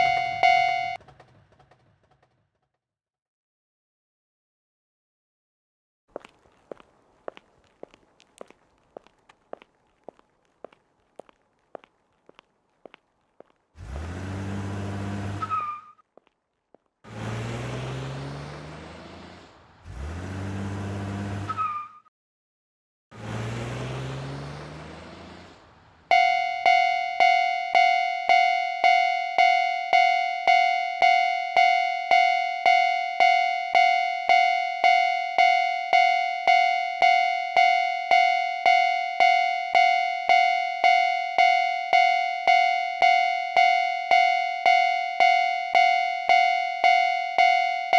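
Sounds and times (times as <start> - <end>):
railroad crossing alarm ringing: 0.0 - 1.0, 26.1 - 47.9
cars driving past: 13.8 - 15.9, 17.1 - 21.9, 23.1 - 47.9.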